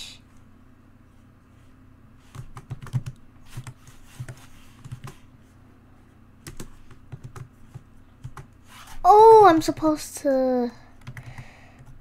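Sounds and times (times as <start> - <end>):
faint low hum: 0.0 - 12.0
computer keyboard typing: 2.3 - 5.2, 6.4 - 8.6, 11.0 - 12.0.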